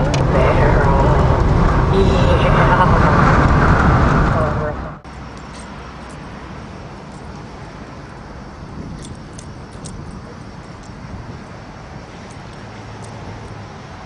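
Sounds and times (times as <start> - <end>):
low hum: 0.0 - 14.0
light jingles: 5.1 - 13.7.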